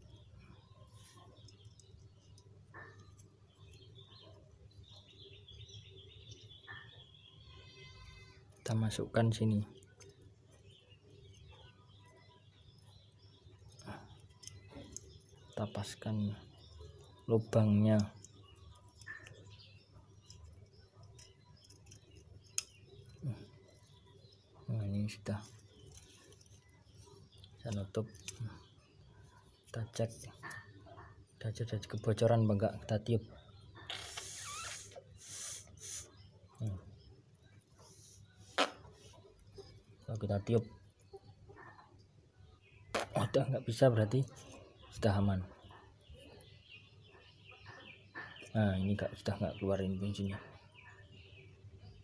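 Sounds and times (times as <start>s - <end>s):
small birds chirping: 0.0s - 52.0s
metal parts clicking and tapping: 20.2s - 23.2s.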